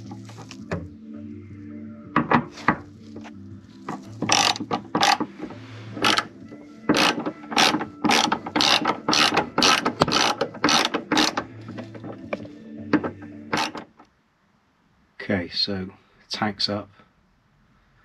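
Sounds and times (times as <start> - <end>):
ratchet clicking: 4.2 - 5.3, 6.0 - 6.3, 6.9 - 11.5, 13.5 - 13.9.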